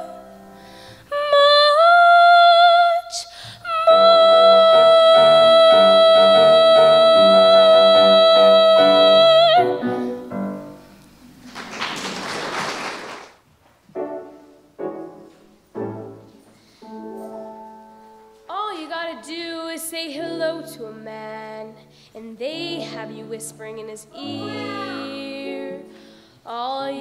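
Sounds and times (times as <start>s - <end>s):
girl singing: 1.0s - 10.2s, 18.5s - 27.0s
piano chords: 3.7s - 11.7s, 13.9s - 27.0s
applause: 11.4s - 13.4s.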